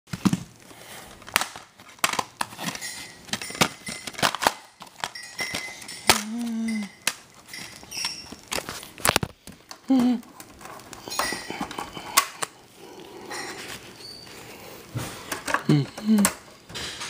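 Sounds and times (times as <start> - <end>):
plastic case clicking and snapping: 1.2 - 5.2.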